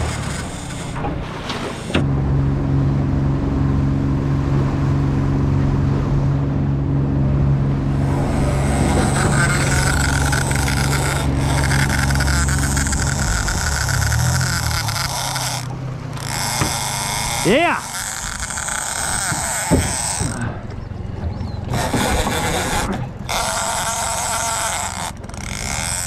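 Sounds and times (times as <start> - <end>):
fishing reel drag whine: 0.0 - 2.1, 7.9 - 26.0
outboard motor running: 0.0 - 26.0
rush of boat wake: 0.0 - 26.0.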